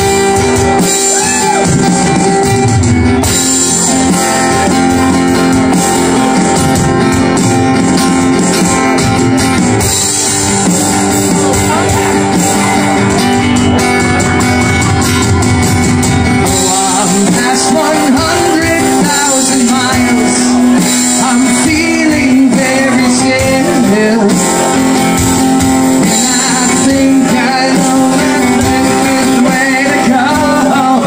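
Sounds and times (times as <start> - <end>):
acoustic guitar strumming: 0.0 - 31.0
electronic drum kit: 0.0 - 31.0
man singing: 10.6 - 13.8, 16.3 - 31.0.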